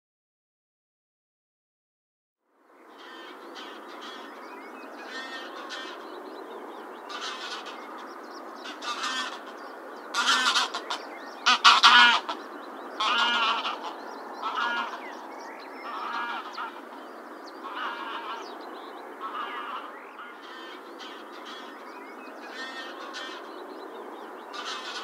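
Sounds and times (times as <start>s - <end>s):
geese honking: 5.0s - 6.0s, 7.1s - 12.4s, 13.0s - 15.2s, 15.8s - 17.0s, 17.6s - 18.6s, 19.2s - 21.8s, 22.4s - 23.6s, 24.5s - 25.0s.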